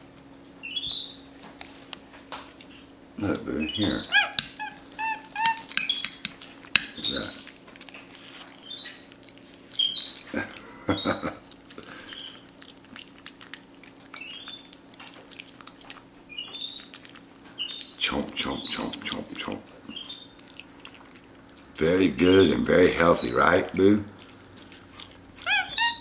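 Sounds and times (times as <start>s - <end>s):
monkey chirping squeaks: 0.6s - 1.3s, 3.6s - 7.7s, 8.6s - 9.0s, 9.8s - 10.3s, 14.2s - 14.7s, 16.3s - 16.9s, 17.6s - 18.0s, 19.9s - 20.4s, 23.2s - 23.8s, 25.4s - 26.0s
wet lip-smacking and chewing: 1.5s - 21.9s, 22.8s - 26.0s.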